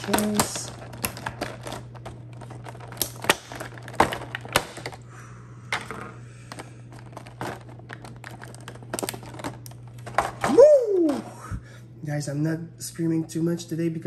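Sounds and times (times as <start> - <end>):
plastic crinkling: 0.0 - 5.0, 6.6 - 10.2
plastic packaging clicks and snaps: 0.0 - 5.0, 7.0 - 10.4.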